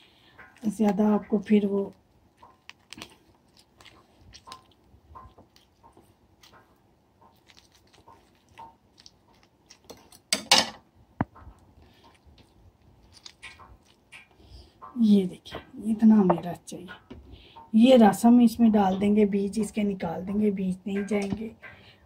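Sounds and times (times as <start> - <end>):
wet squishes of lemon: 0.1 - 10.4, 11.4 - 15.0.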